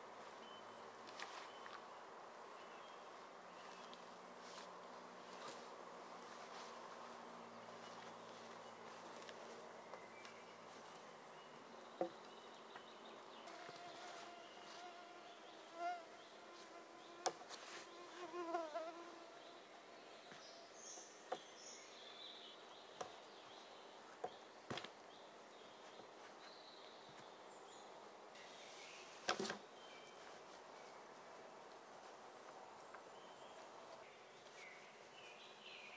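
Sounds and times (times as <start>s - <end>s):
fly buzzing: 13.5s - 19.5s.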